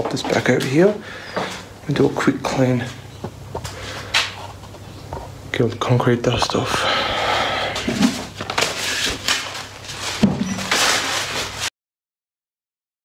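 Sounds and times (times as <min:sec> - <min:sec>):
rustling scraping and knocking: 0:07.8 - 0:11.7.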